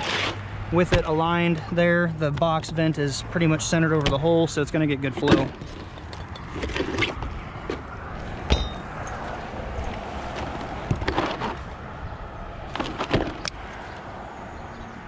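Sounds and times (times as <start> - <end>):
plastic knocks and scrapes: 10.3 - 11.7.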